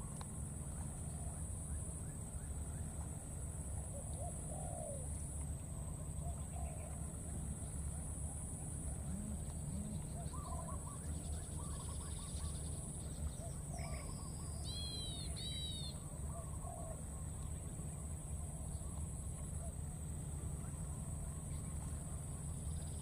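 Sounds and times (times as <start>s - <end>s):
steady high-pitched hum: 0.0s - 23.0s
birds calling: 9.0s - 17.0s.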